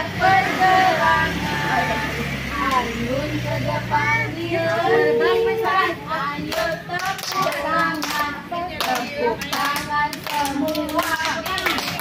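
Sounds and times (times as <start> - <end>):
voices chanting: 0.0 - 11.2
children clapping hands: 6.5 - 12.0.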